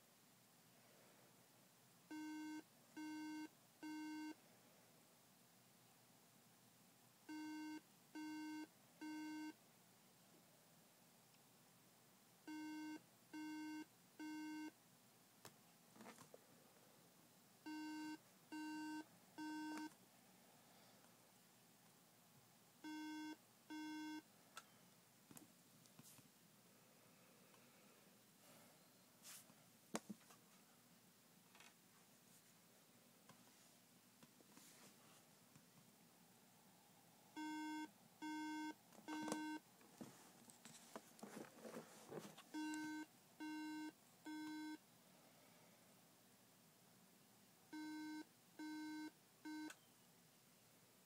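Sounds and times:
laptop alarm beeps: 2.1s - 4.4s, 7.3s - 9.6s, 12.5s - 14.7s, 17.7s - 19.9s, 22.8s - 24.2s, 37.4s - 39.6s, 42.6s - 44.8s, 47.7s - 49.9s
handling rustle: 39.9s - 42.5s.

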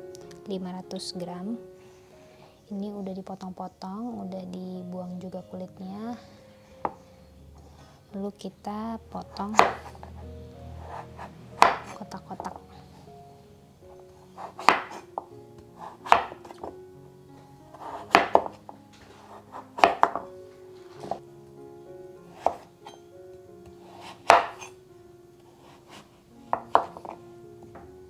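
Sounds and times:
knife cutting pumpkin: 9.4s - 10.0s, 10.8s - 12.5s, 14.4s - 15.1s, 15.8s - 16.7s, 17.7s - 18.6s, 19.2s - 20.2s, 22.4s - 23.0s, 24.0s - 24.7s, 25.6s - 27.2s
knife knocking on wooden board: 19.8s - 20.2s, 26.6s - 27.2s.

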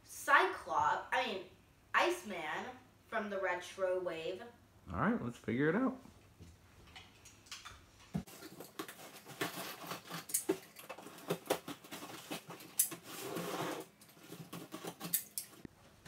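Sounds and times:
cardboard scraping and rustling: 8.2s - 15.2s
knife scratching through packing tape: 8.6s - 15.6s.

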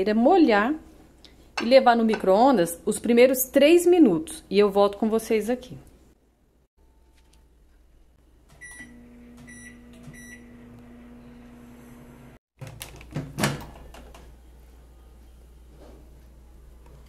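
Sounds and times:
microwave keypad beeping: 8.6s - 10.6s
microwave oven humming: 8.6s - 12.4s.

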